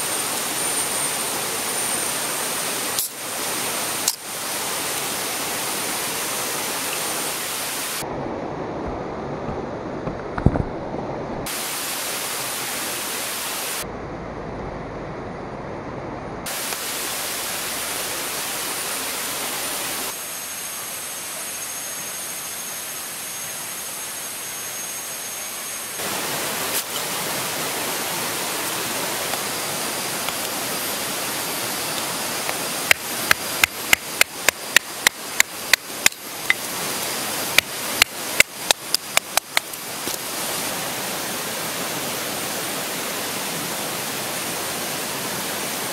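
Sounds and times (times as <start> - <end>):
water rushing in rocky stream: 0.0 - 8.0, 26.0 - 45.9
knife chopping wooden stick: 37.6 - 40.2.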